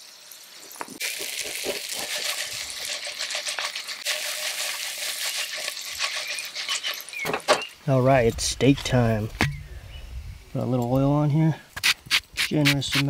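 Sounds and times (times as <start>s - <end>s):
potatoes sizzling in skillet: 0.0s - 7.8s.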